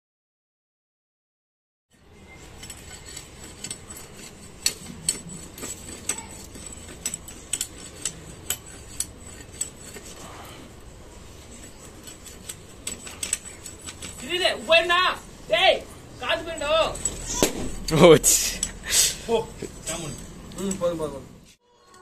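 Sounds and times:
knife scraping bark off stick: 0:02.4 - 0:10.7, 0:11.3 - 0:14.8.

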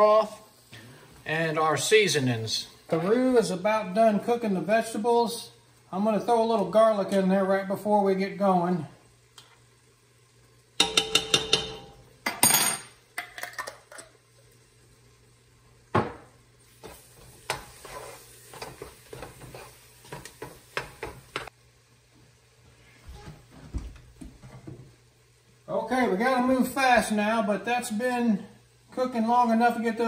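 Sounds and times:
light sizzle: 0:00.0 - 0:30.0
metal utensils clanking on pot: 0:10.8 - 0:14.0
spoon stirring and scraping: 0:16.8 - 0:21.5.

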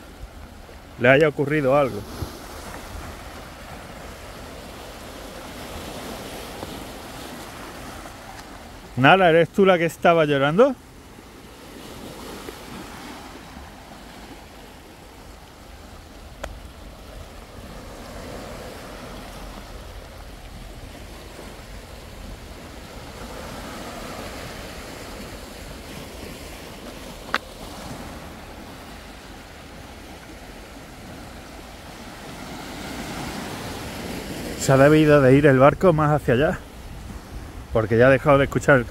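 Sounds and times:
small waves lapping over rocks: 0:00.0 - 0:35.2
wind on microphone: 0:36.3 - 0:38.9.

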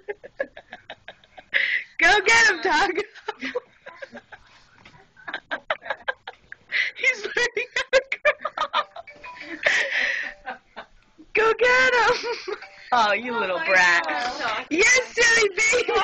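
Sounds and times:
people laughing: 0:02.6 - 0:06.4, 0:13.3 - 0:16.0.

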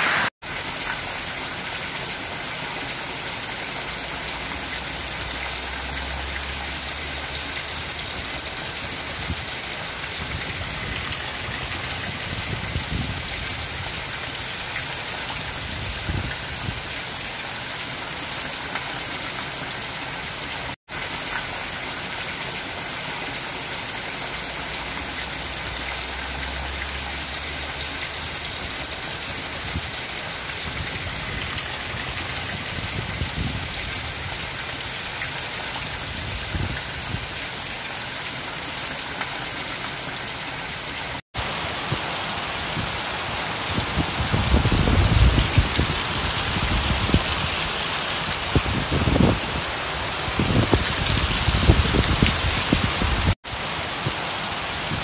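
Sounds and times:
water pouring off roof edge: 0:00.0 - 0:41.6
heavy rain on a metal roof: 0:00.0 - 0:55.0.

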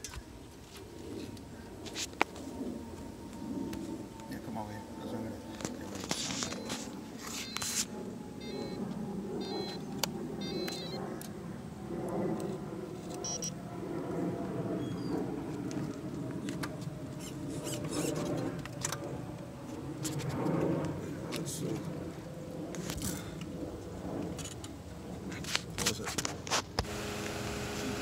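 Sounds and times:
short electronic beeps: 0:07.4 - 0:07.7, 0:08.4 - 0:08.8, 0:09.4 - 0:09.8, 0:10.4 - 0:11.0, 0:13.2 - 0:13.5
electric drive motors whirring: 0:26.8 - 0:28.0.

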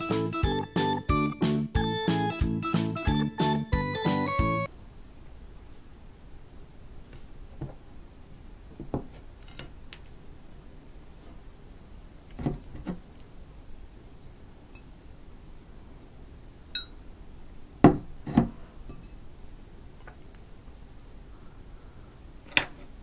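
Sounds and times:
glass clink: 0:16.7 - 0:17.0.

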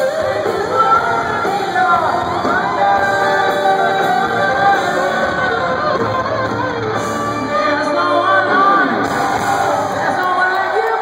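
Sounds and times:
electric guitar: 0:00.0 - 0:11.0
live hard rock band: 0:00.0 - 0:11.0
person singing: 0:00.0 - 0:11.0.

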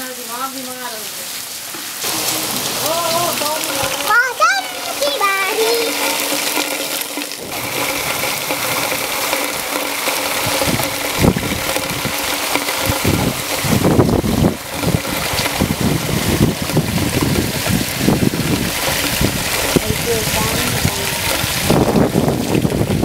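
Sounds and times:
heavy rain falling: 0:00.0 - 0:23.0
wind bumps on microphone: 0:10.3 - 0:23.0.

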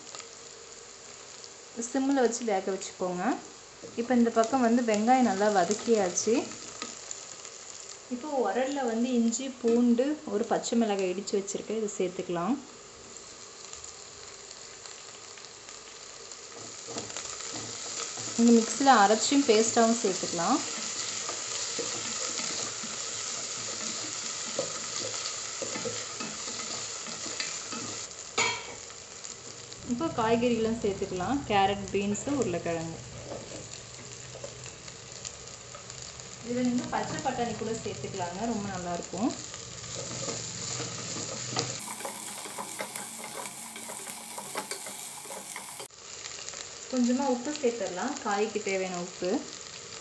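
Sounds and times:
onions sizzling in hot fat: 0:00.0 - 0:50.0
spatula scraping a pan: 0:20.7 - 0:28.0, 0:39.8 - 0:45.9.

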